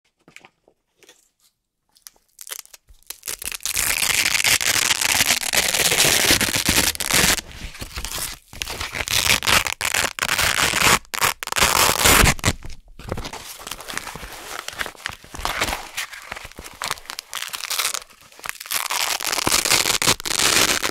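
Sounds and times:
velcro ripping apart: 0:02.4 - 0:12.8, 0:13.6 - 0:20.9.

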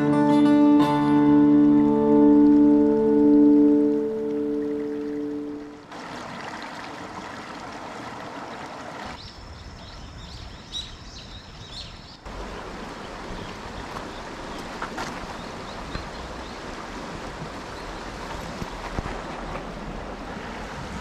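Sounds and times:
acoustic guitar notes: 0:00.0 - 0:05.8
rocky stream running: 0:02.2 - 0:09.2, 0:12.2 - 0:21.0
water trickling and dripping: 0:02.2 - 0:09.3.

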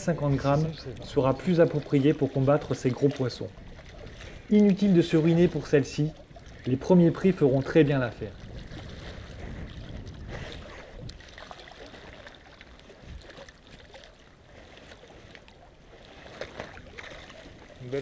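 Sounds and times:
waves lapping against rocks: 0:00.0 - 0:18.0
wind on microphone: 0:05.2 - 0:12.2, 0:12.9 - 0:13.4.

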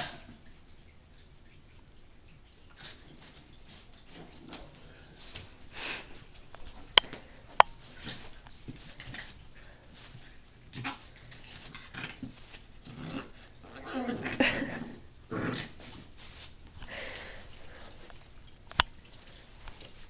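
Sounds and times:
puppy play growls and grunts: 0:10.6 - 0:16.1.

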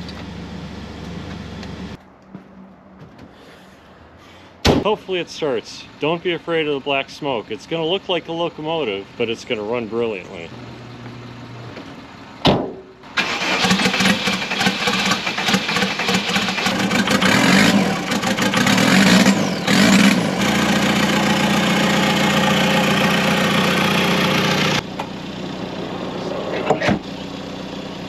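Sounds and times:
diesel engine starting and idling: 0:00.0 - 0:02.0, 0:04.9 - 0:28.0.

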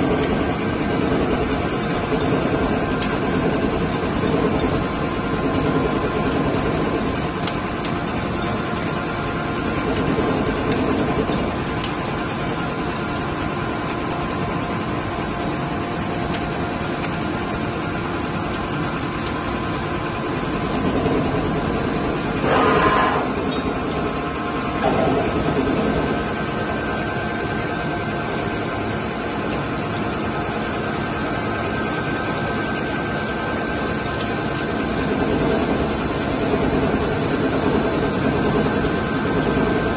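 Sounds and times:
lathe mechanical whir: 0:00.0 - 0:39.9
high-pitched machine whine: 0:20.2 - 0:29.2.

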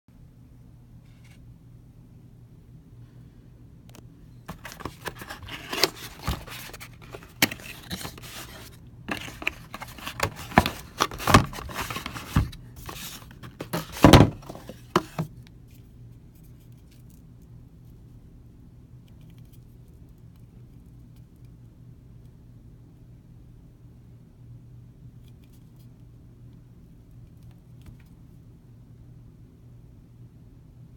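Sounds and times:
faint steady hum: 0:00.1 - 0:30.9
cardboard flaps rustling and scraping: 0:04.5 - 0:15.3
knocks of box handling: 0:04.5 - 0:15.3.

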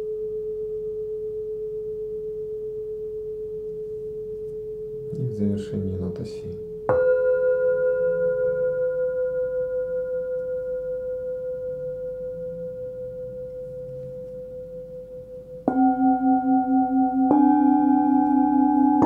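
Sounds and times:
lower-pitched bowl struck with mallet: 0:06.6 - 0:19.0
singing bowl ringing: 0:06.6 - 0:19.0.

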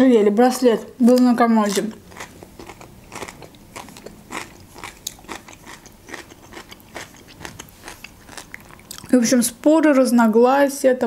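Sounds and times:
person chewing food: 0:01.1 - 0:09.2.

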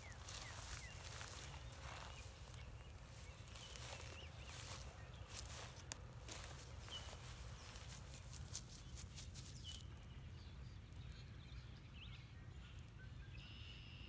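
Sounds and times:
faint bird chirps: 0:00.0 - 0:05.7, 0:09.2 - 0:14.0
footsteps rustling through dry grass: 0:00.0 - 0:10.0
low steady outdoor rumble: 0:00.0 - 0:14.0.

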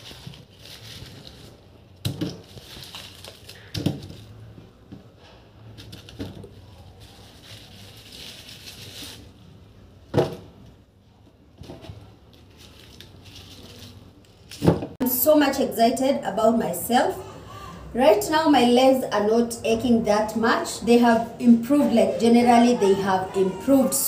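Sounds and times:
plastic bags rustling: 0:00.0 - 0:09.7, 0:11.4 - 0:15.0.

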